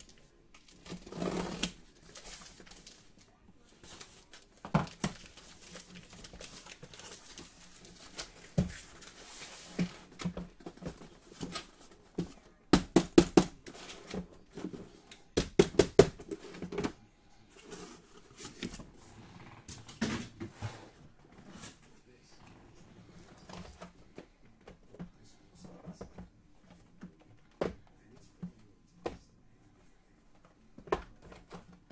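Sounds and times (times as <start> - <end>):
cardboard scraping and rustling: 0.6 - 3.0, 3.8 - 12.2
cardboard boxes knocking: 12.2 - 13.7, 15.4 - 17.0.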